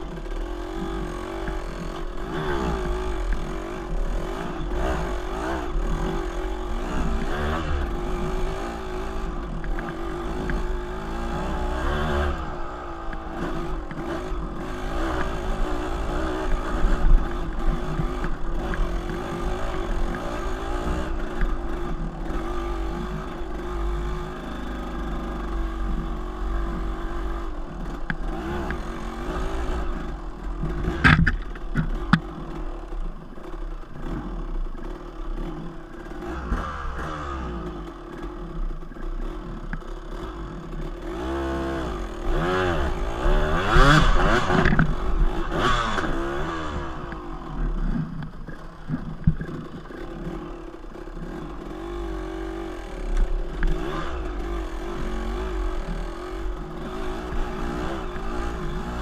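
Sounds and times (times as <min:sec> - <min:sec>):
dirt bike engine: 0:00.0 - 0:59.0.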